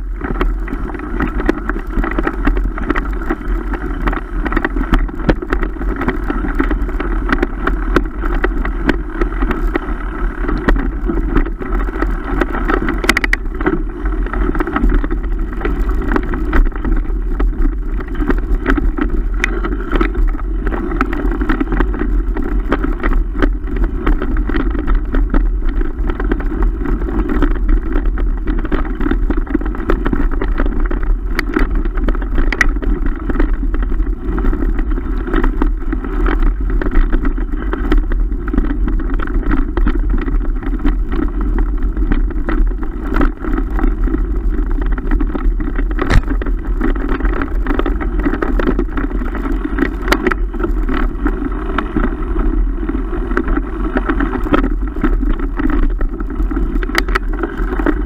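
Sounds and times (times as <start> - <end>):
bike knocks and rattles: 0.0 - 58.0
tyres rolling on dirt: 0.0 - 58.0
wind rush on microphone: 0.0 - 58.0.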